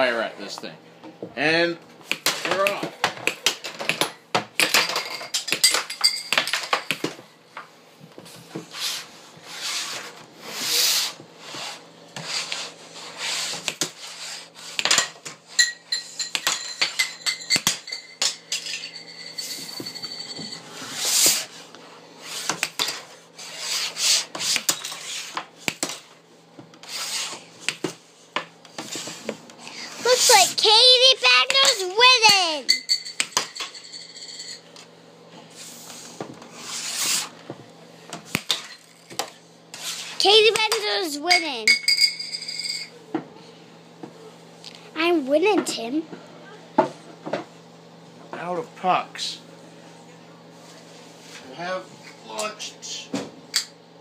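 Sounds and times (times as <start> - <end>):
air hockey pucks clacking: 2.0 - 7.2, 14.7 - 18.4, 27.6 - 29.2, 31.0 - 33.6, 40.0 - 42.0
pucks striking plastic toys: 30.1 - 32.6, 40.4 - 41.5.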